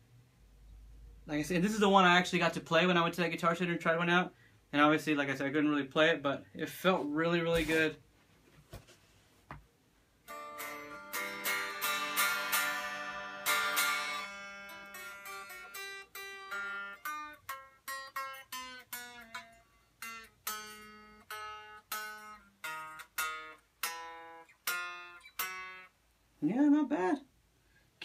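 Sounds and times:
guitar notes picked: 10.2s - 26.0s
acoustic guitar strings strummed: 10.3s - 26.0s.

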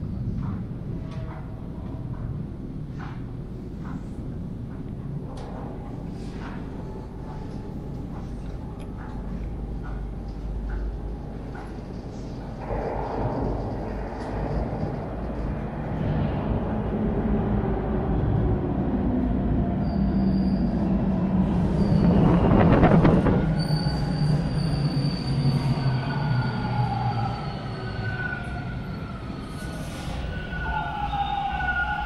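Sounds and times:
subway train rumbling: 0.0s - 32.0s
train brakes squealing: 19.8s - 20.9s, 21.5s - 32.0s.

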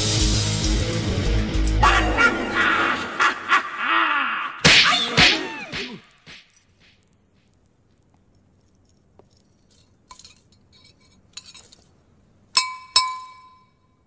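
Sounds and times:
drinking glass clinking: 12.6s - 14.0s.

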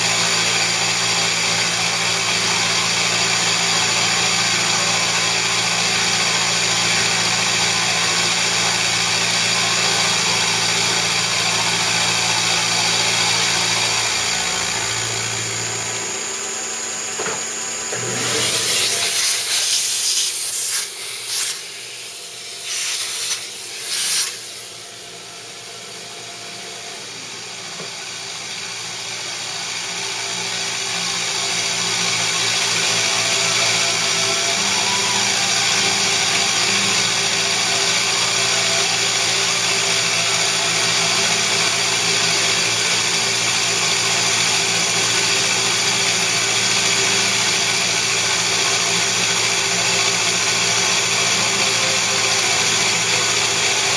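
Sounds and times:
milling machine cutting hiss: 2.5s - 26.0s.

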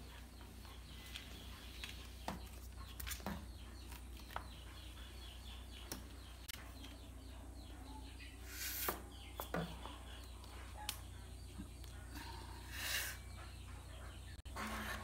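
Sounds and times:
birds chirping: 0.0s - 15.0s.

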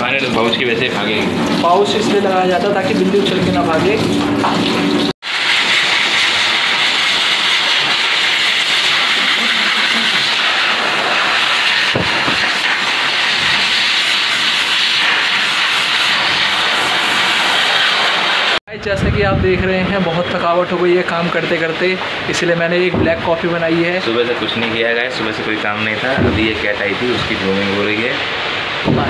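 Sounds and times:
shower spray: 0.0s - 18.6s
blow dryer hissing air: 5.2s - 18.6s.

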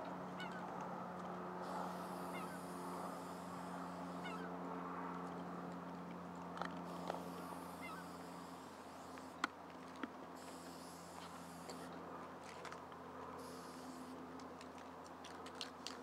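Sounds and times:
steady low hum: 0.0s - 16.0s
geese honking: 0.4s - 0.7s, 1.7s - 4.5s, 7.6s - 8.2s.

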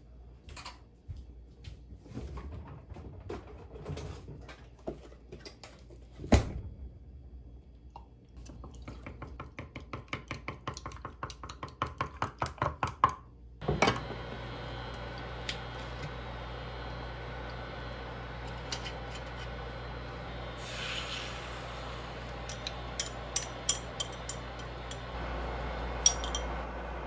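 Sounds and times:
steady hum: 13.6s - 27.0s.

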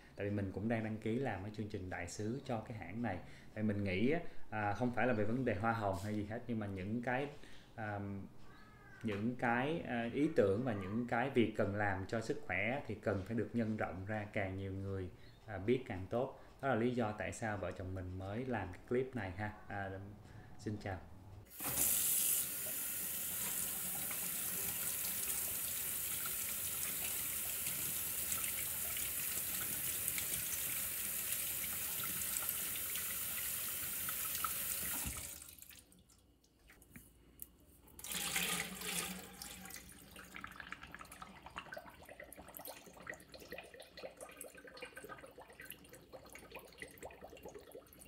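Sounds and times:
tap water splashing into sink: 21.5s - 35.9s, 38.0s - 48.0s
faint bubbling water: 38.0s - 48.0s.

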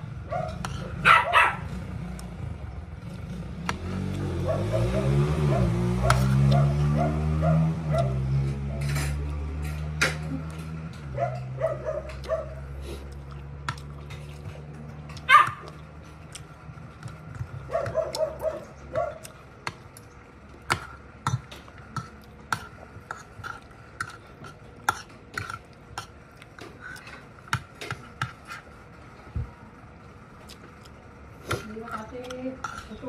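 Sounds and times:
cutlery clinking on a plate: 8.8s - 10.3s.

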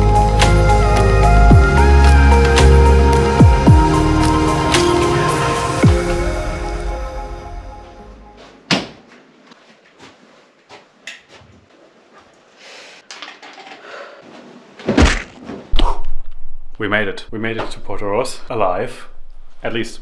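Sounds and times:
clicks and rustles of movement: 13.0s - 13.8s.

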